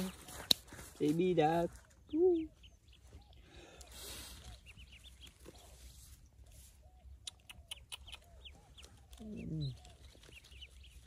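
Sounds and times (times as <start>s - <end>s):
soft rustle: 0.0s - 2.1s, 4.0s - 7.0s
ducklings peeping: 2.0s - 11.0s.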